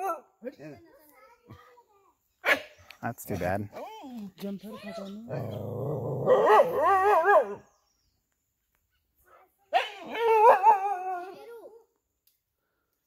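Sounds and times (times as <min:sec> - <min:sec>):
dog growling: 0:05.3 - 0:06.9.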